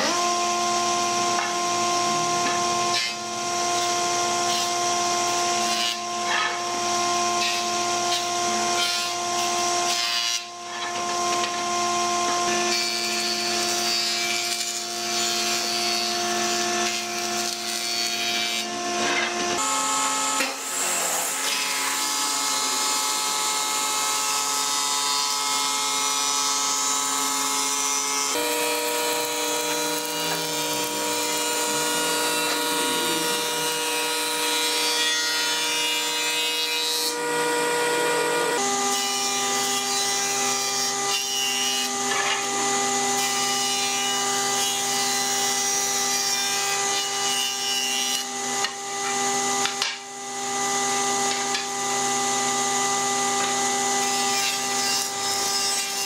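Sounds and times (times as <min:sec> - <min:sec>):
woodworking machine motor hum: 0:00.0 - 0:46.0, 0:48.2 - 0:56.0
rasping wood cutting: 0:12.5 - 0:51.8.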